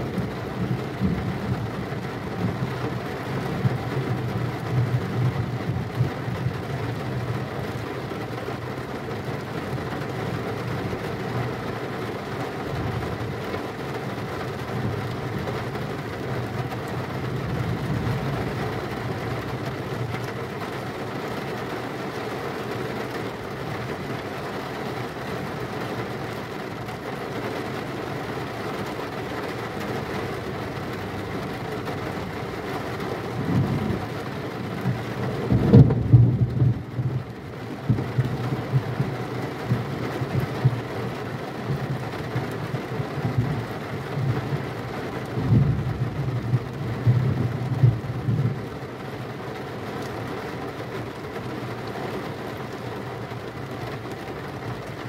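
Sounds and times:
heavy rain: 0:00.0 - 0:55.0
thunder rumbling: 0:34.8 - 0:39.1, 0:45.4 - 0:48.6.

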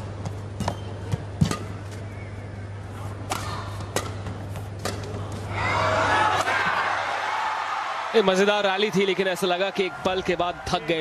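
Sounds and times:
crowd noise: 0:02.8 - 0:11.0
rackets striking shuttlecock: 0:03.2 - 0:05.3.

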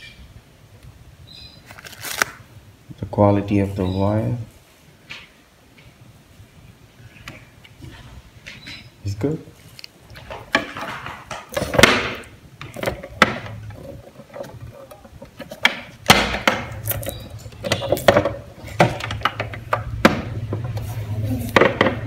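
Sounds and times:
knocks and clacks of handling: 0:10.1 - 0:20.9.

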